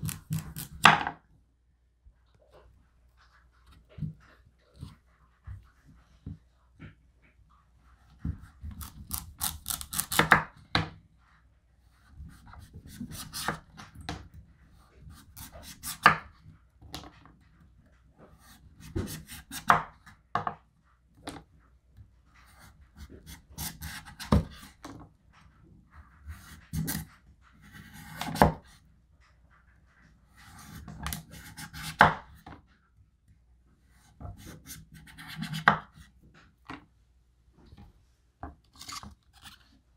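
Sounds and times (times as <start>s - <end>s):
knife rasping through squash skin: 8.7s - 10.4s, 38.7s - 39.7s.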